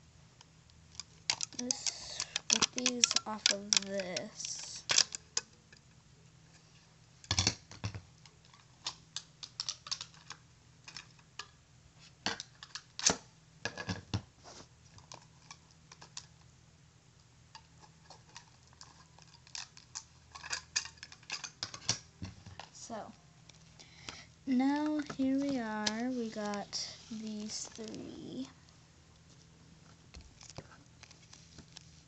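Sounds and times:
card packaging clicks and crinkles: 0:01.0 - 0:05.5, 0:08.2 - 0:11.6, 0:14.9 - 0:16.5, 0:17.6 - 0:22.8, 0:29.3 - 0:32.0.

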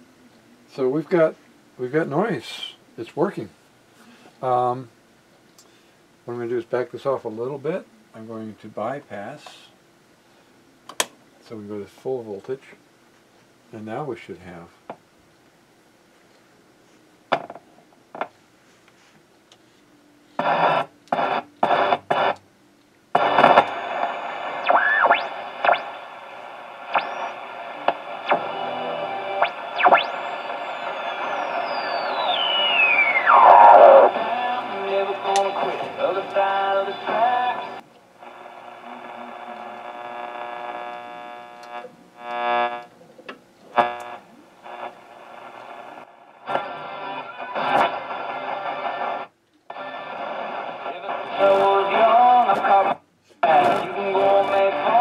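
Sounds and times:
radio hiss: 0:00.0 - 0:04.9, 0:20.3 - 0:22.4, 0:23.1 - 0:55.0
radio static bursts: 0:20.4 - 0:22.4, 0:23.1 - 0:42.9, 0:43.7 - 0:55.0
whistles gliding in pitch: 0:29.8 - 0:33.9.

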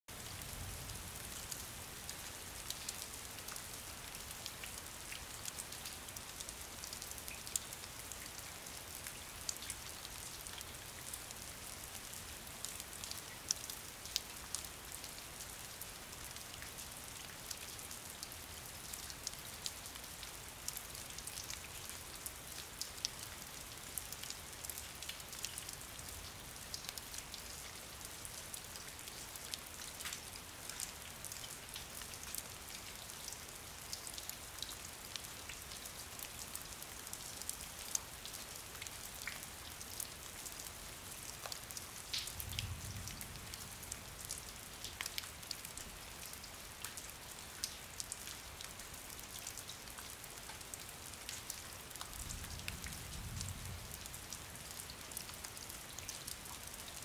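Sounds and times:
steady rain hiss: 0:00.1 - 0:57.0
raindrops clicking nearby: 0:41.3 - 0:48.7.

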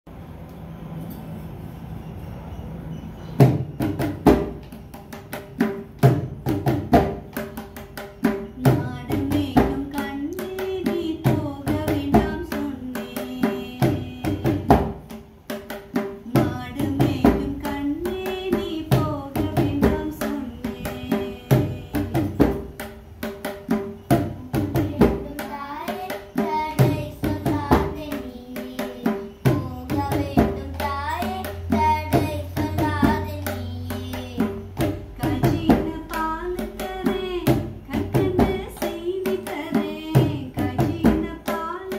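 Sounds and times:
drum rhythm: 0:03.4 - 0:41.9
woman singing: 0:08.6 - 0:15.1, 0:16.2 - 0:22.8, 0:24.1 - 0:41.9.

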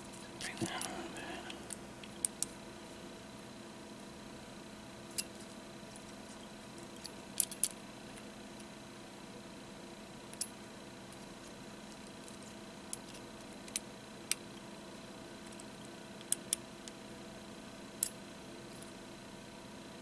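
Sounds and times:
faint steady hum: 0:00.0 - 0:20.0
small metallic clicks: 0:05.1 - 0:08.7, 0:10.3 - 0:14.4.

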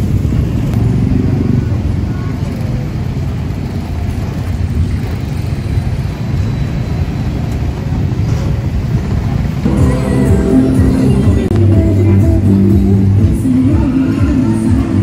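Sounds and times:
low rumble of street traffic: 0:00.0 - 0:15.0.

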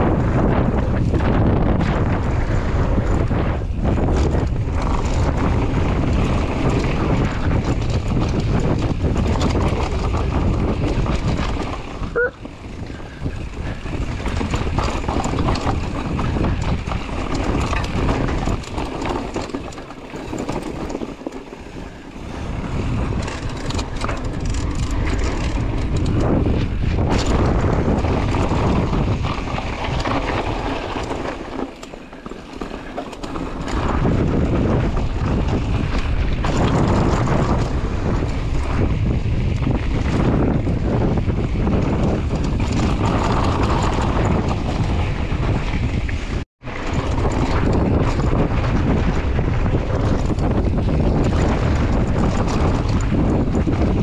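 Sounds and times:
bike tyres rattling over dirt: 0:00.0 - 0:54.0
wind buffeting microphone: 0:00.0 - 0:54.0.

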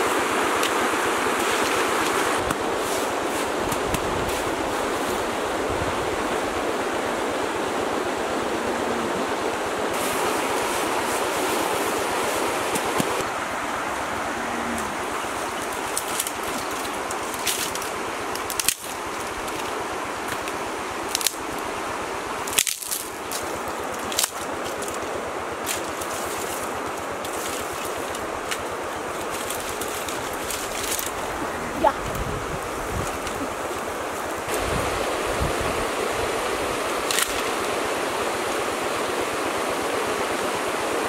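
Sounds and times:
twigs rustling: 0:14.4 - 0:35.4, 0:36.9 - 0:37.8
sticks snapping: 0:15.6 - 0:21.5, 0:22.4 - 0:31.3, 0:37.0 - 0:37.6.

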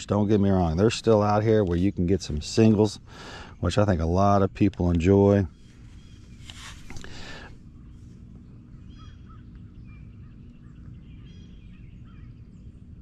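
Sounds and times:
low background rumble: 0:00.0 - 0:13.0
brief rustle: 0:05.7 - 0:07.3
distant honk-like bird calls: 0:08.8 - 0:12.4.

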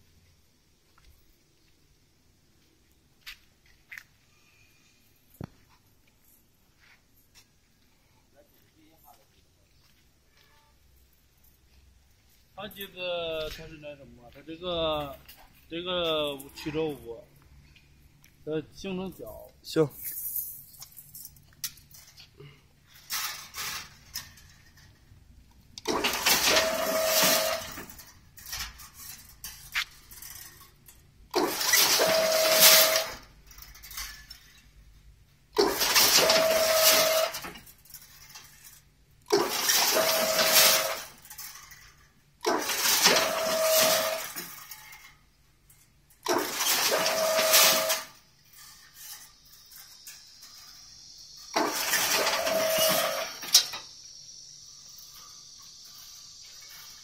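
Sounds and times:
machine whine: 0:25.8 - 0:28.0, 0:31.4 - 0:33.2, 0:39.4 - 0:41.1, 0:42.5 - 0:44.4, 0:49.0 - 0:57.0
weaving machine clatter: 0:25.8 - 0:30.7, 0:31.3 - 0:34.4, 0:35.6 - 0:45.0, 0:46.2 - 0:53.8.

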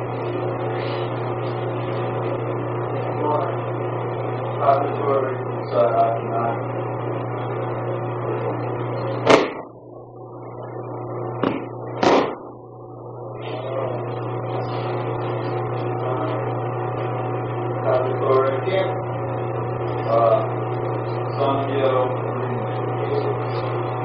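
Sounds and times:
low hum: 0:00.0 - 0:24.0
body thudding onto mat: 0:11.4 - 0:12.5.

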